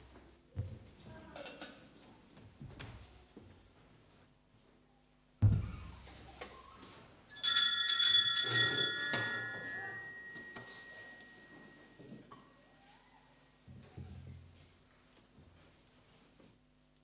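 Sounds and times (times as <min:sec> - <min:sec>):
thump: 0:05.4 - 0:05.9
altar bells ringing: 0:07.3 - 0:12.0.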